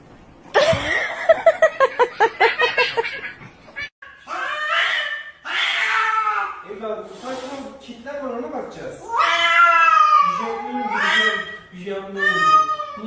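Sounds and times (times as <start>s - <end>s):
person laughing: 0.6s - 3.8s
cat yowling: 4.3s - 6.6s, 9.1s - 11.5s, 12.1s - 13.0s.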